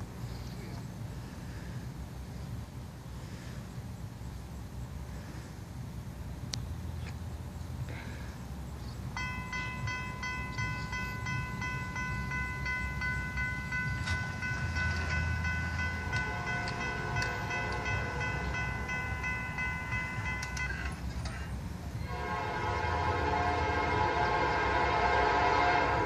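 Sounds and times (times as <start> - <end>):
crossing warning bell ringing: 9.0 - 26.0
distant train horn: 9.2 - 26.0.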